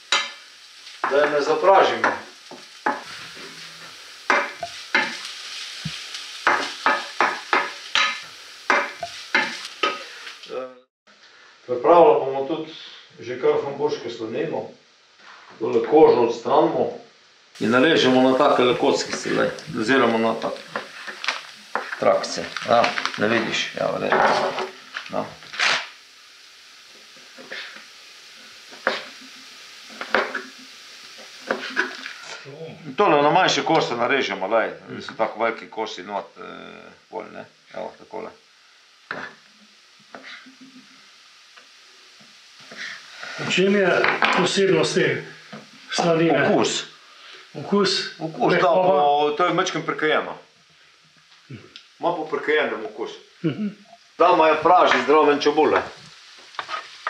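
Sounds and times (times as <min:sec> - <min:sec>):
onion sizzling in a pan: 0:00.0 - 0:57.0
stirring scraping strokes: 0:02.0 - 0:10.0, 0:18.4 - 0:23.4, 0:31.4 - 0:32.4, 0:55.8 - 0:57.0.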